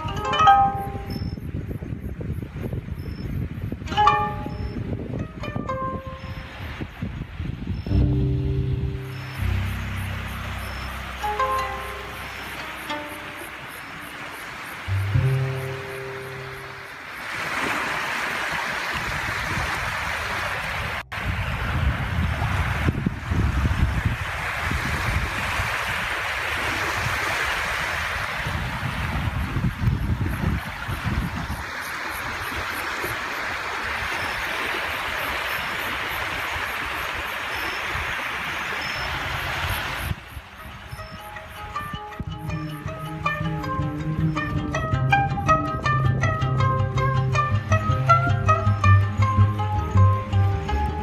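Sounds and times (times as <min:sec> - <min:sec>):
wind rumbling on microphone: 0:00.0 - 0:51.0
small waves lapping: 0:05.7 - 0:44.5
held guitar note: 0:07.9 - 0:13.7, 0:14.9 - 0:16.9
wind rushing: 0:18.6 - 0:31.6.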